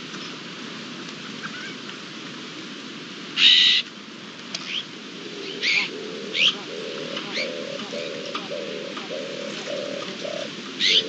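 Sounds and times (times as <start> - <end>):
background hiss: 0.0 - 11.0
magpies calling: 4.7 - 11.0
dove cooing: 5.1 - 11.0.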